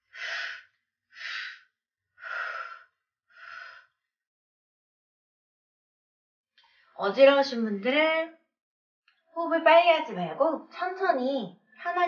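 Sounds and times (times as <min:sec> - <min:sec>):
woman breathing hard: 0:00.0 - 0:04.0.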